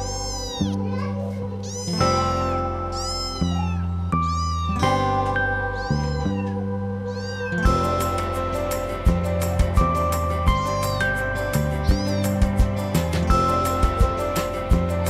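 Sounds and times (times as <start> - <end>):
kitten meowing: 0.0 - 8.2, 10.5 - 14.2
background music with bass line: 0.0 - 15.0
fast ticking beat: 7.6 - 15.0.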